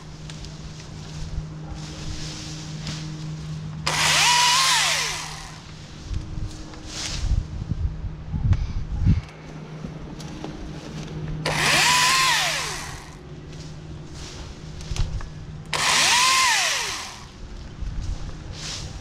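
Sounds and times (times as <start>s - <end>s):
battery chainsaw cutting branches: 2.5s - 7.3s, 11.4s - 13.2s, 15.0s - 17.5s.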